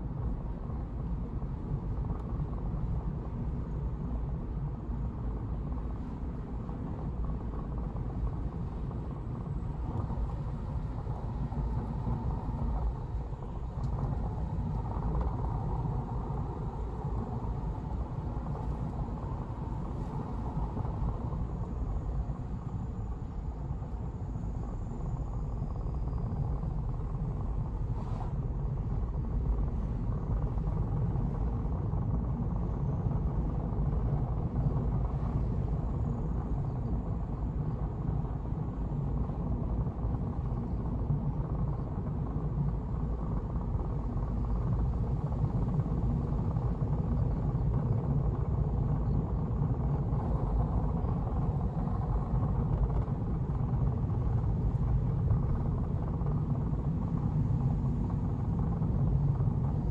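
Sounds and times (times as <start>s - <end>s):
car driving on road: 0.1s - 36.7s.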